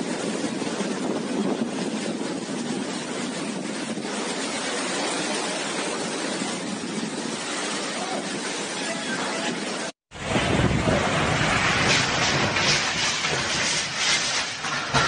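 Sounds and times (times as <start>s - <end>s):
heavy wind: 0.0s - 15.0s
rain: 0.0s - 15.0s.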